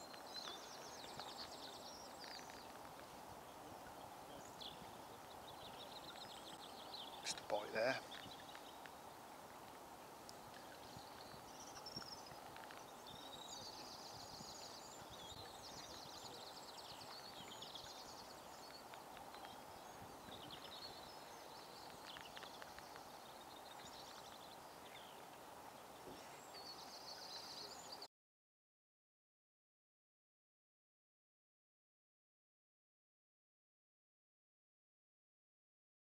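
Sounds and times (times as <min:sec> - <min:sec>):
soft background hiss: 0:00.0 - 0:28.1
songbirds trilling and chirping: 0:00.0 - 0:28.1.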